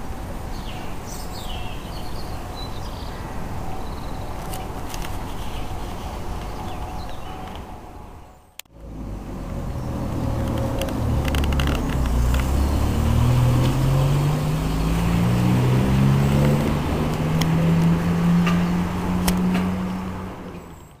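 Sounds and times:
diesel engine pulling away: 0:08.7 - 0:21.0.

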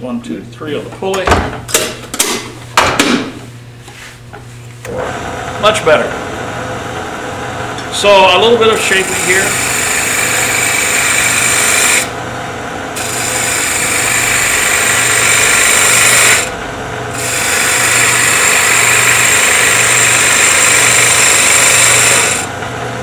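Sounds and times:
lathe motor hum: 0:04.8 - 0:23.0
gouge cutting wood hiss: 0:08.8 - 0:12.1, 0:13.0 - 0:16.5, 0:17.2 - 0:22.5.

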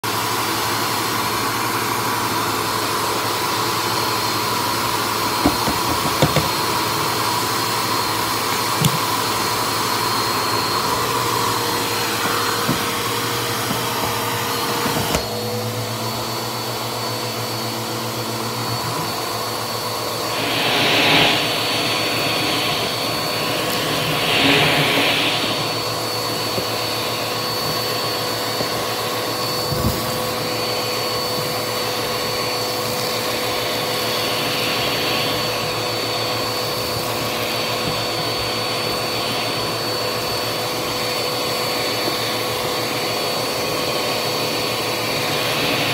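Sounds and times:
vacuum cleaner running: 0:00.0 - 0:45.9
rushing air: 0:19.6 - 0:27.5.

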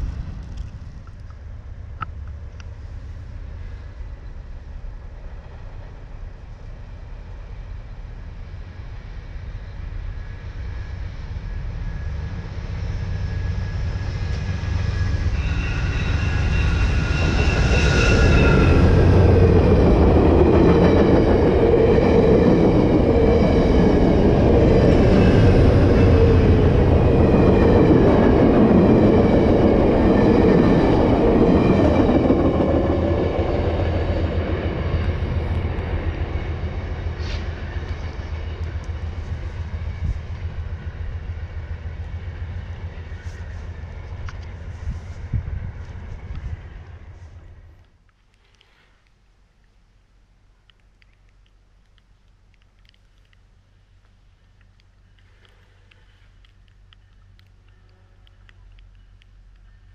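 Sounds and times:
train passing at speed: 0:00.0 - 0:47.9
high ringing whine: 0:07.7 - 0:45.2.

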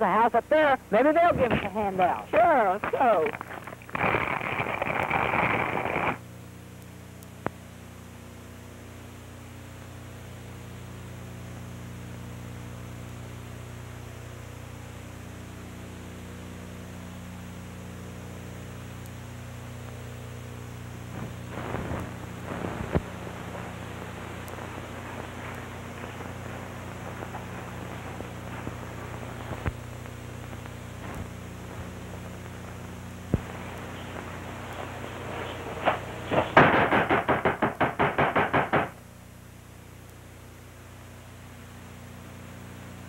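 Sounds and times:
faint scratchy sounds: 0:00.0 - 0:06.2, 0:20.7 - 0:37.2
film soundtrack hiss and hum: 0:00.0 - 0:43.0
loud hissy noise: 0:00.6 - 0:06.2, 0:20.4 - 0:39.0.

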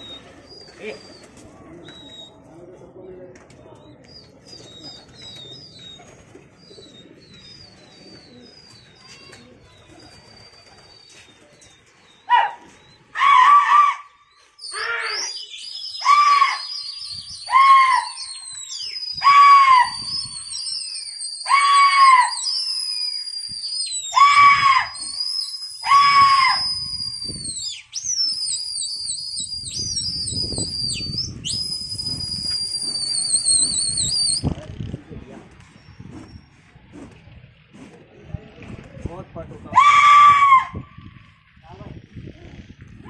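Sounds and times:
loud high-pitched yells: 0:12.3 - 0:16.8, 0:17.4 - 0:18.4, 0:19.1 - 0:20.2, 0:21.4 - 0:22.6, 0:24.0 - 0:25.2, 0:25.8 - 0:26.9, 0:39.7 - 0:41.0
long high whistles: 0:14.6 - 0:34.4.

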